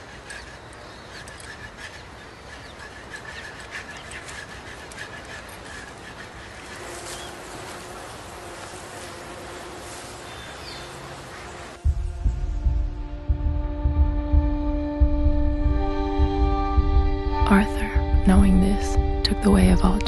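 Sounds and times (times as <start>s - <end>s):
steady background hiss: 0.0s - 12.0s
birds chirping: 0.0s - 20.0s
low steady hum: 6.8s - 20.0s.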